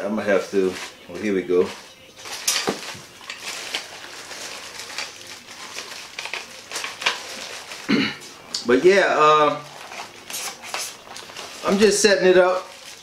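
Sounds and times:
plastic bag crinkling: 0.1 - 8.0, 8.6 - 13.0.

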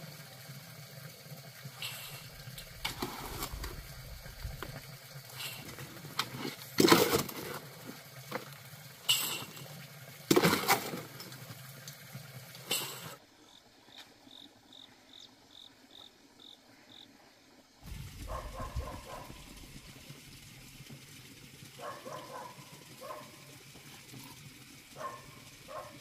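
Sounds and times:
shovel scraping wet concrete: 1.8 - 3.8, 5.4 - 7.8, 10.3 - 11.2
insect chirping: 12.8 - 20.0.

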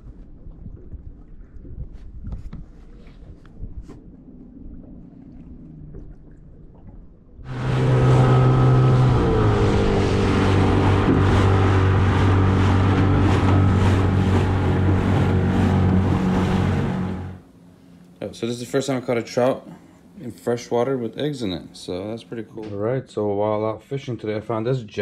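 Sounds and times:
water lapping: 0.0 - 18.0
boat motor running: 3.4 - 17.5.

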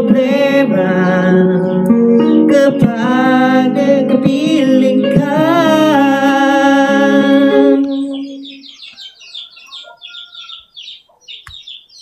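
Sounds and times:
man singing with reverb: 0.0 - 8.7
small bird chirping rapidly: 8.1 - 12.0.

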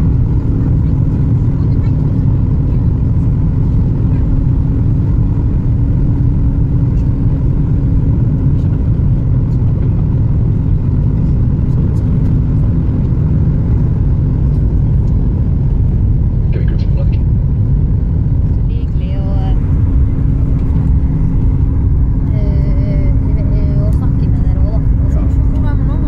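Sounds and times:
airplane cabin rumble: 0.0 - 26.0
faint steady hum: 0.0 - 26.0.

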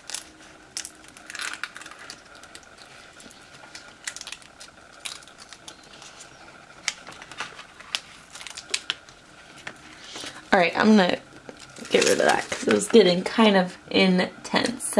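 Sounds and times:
adhesive film peeling: 0.0 - 9.8.

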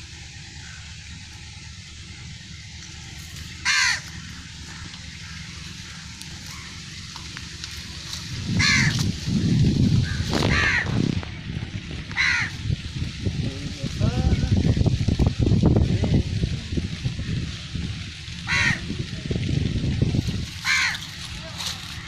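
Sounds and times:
low uneven rumbling: 0.0 - 22.0
crow cawing: 0.6 - 1.0, 3.5 - 7.0, 8.5 - 9.1, 10.0 - 11.0, 12.1 - 12.6, 18.4 - 18.9, 20.6 - 22.0.

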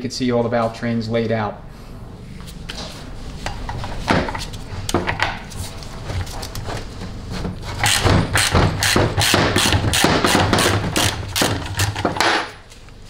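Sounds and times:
ratchet clicking: 7.8 - 10.1.

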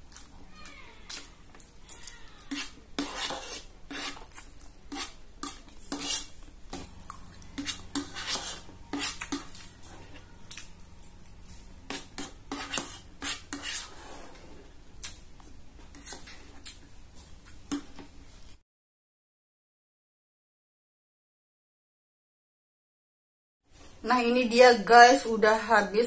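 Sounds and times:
slurping and chewing noodles: 1.0 - 10.7.

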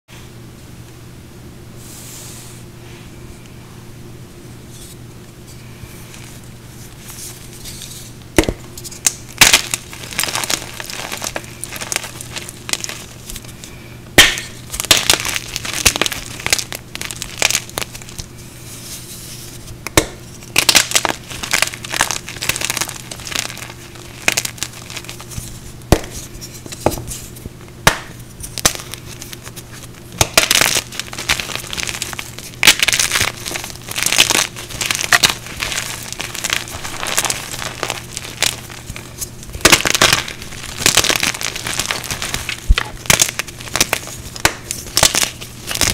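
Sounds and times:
pieces snapping with cracks: 8.4 - 13.5, 14.2 - 18.3, 19.9 - 27.1, 27.8 - 29.6, 30.2 - 45.9
hands crunching chalky blocks: 8.8 - 45.9.

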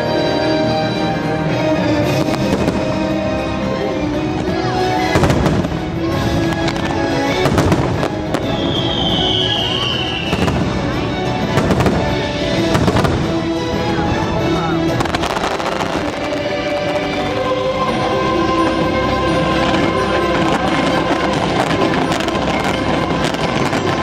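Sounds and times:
fireworks bangs and crackles: 0.0 - 24.0
musical soundtrack: 0.0 - 24.0
long high whistle: 8.3 - 10.6.

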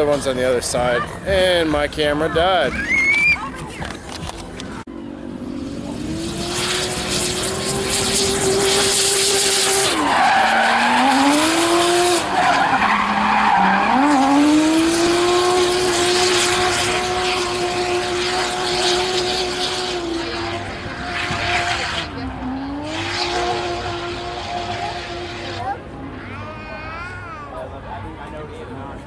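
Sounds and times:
car engine at high revs: 5.2 - 26.2.

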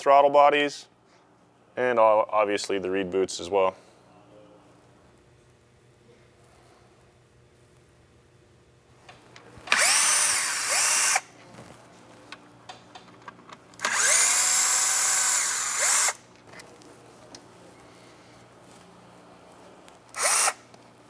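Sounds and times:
cordless drill whining: 9.7 - 11.2, 13.8 - 16.2, 20.1 - 20.6.

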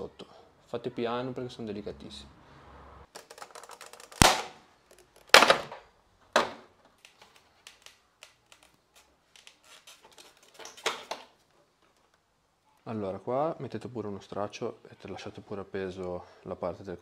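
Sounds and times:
plastic tabs snapping: 3.2 - 5.7.

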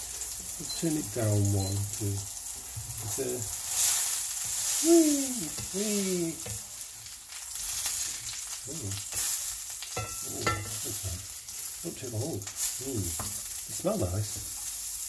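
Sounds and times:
burgers sizzling in frying pan: 0.0 - 15.0
spatula scraping pan: 9.0 - 11.7.

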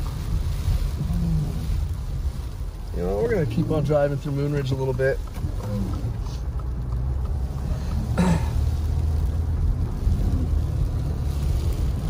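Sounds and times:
car road and engine rumble: 0.0 - 12.0
person coughing: 8.2 - 8.6.

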